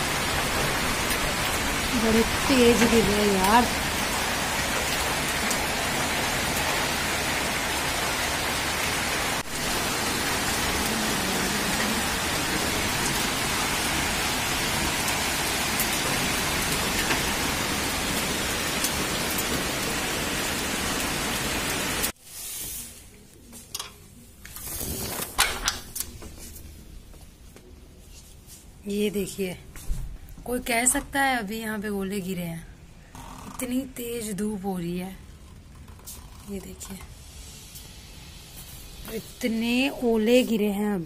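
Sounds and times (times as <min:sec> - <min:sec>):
hailstones ticking: 0:00.0 - 0:08.5, 0:09.6 - 0:22.1
heavy rain hissing: 0:00.0 - 0:23.0, 0:37.1 - 0:40.6.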